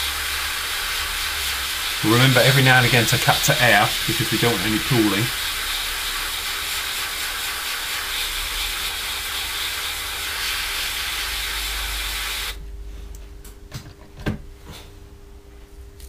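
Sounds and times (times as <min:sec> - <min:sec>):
airbrush spraying hiss: 0:00.0 - 0:12.6.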